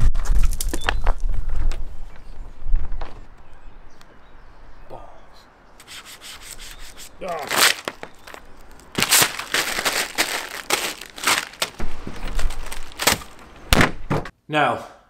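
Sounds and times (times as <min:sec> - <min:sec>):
paper crinkling: 0:05.8 - 0:14.1.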